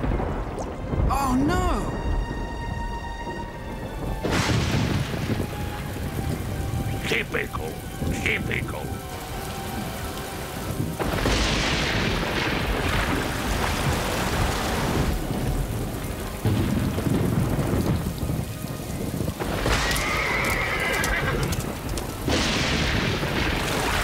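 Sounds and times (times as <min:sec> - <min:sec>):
thunder: 0:00.0 - 0:07.0, 0:10.6 - 0:24.0
heavy rain: 0:00.0 - 0:24.0
horse whinnying: 0:19.8 - 0:21.7.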